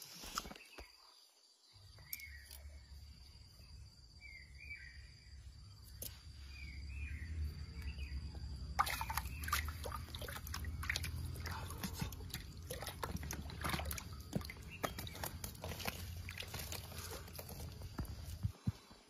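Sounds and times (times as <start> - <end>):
bird chirps: 0.4 - 12.2, 13.2 - 17.9
low outdoor rumble: 6.4 - 18.4
fish splashing in water: 8.7 - 17.8.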